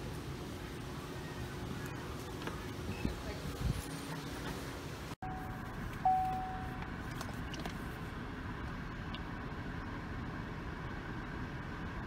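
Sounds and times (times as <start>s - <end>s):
car engine idling: 4.1s - 12.0s
short beep: 5.2s - 6.8s.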